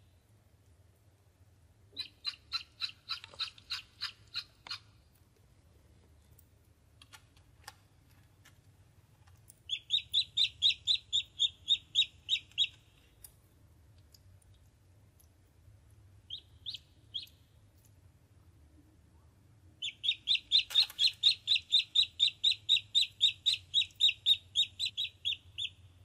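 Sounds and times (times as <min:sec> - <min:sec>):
ducklings peeping: 0:02.0 - 0:04.9, 0:09.7 - 0:12.8, 0:16.3 - 0:17.4, 0:19.8 - 0:25.9.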